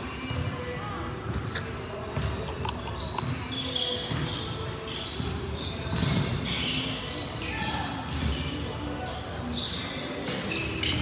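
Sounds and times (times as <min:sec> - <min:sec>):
shoes squeaking on floor: 0:00.1 - 0:11.0
ball bouncing on court: 0:02.1 - 0:02.5, 0:04.0 - 0:04.5, 0:05.1 - 0:06.6.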